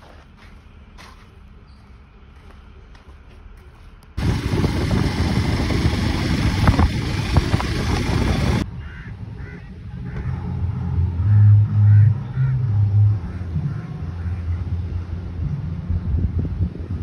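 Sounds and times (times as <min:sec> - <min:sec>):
low uneven hum: 0:00.0 - 0:17.0
motorcycle engine running: 0:04.2 - 0:08.7
wind rush over microphone: 0:04.2 - 0:08.7, 0:14.8 - 0:17.0.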